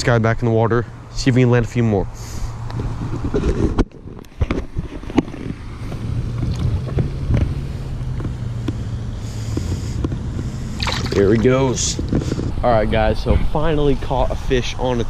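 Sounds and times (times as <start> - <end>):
wind rumble on microphone: 2.6 - 8.8, 9.4 - 15.0
water sloshing and splashing: 6.4 - 7.0, 10.7 - 11.8.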